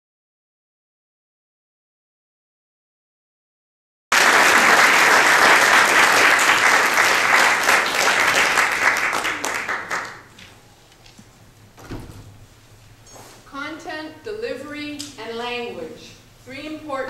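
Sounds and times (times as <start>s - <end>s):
audience applauding: 4.1s - 10.4s.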